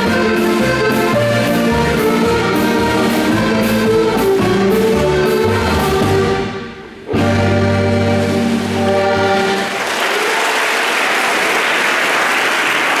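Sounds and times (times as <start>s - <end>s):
dance band chord: 0.0s - 9.7s
people applauding: 9.4s - 13.0s.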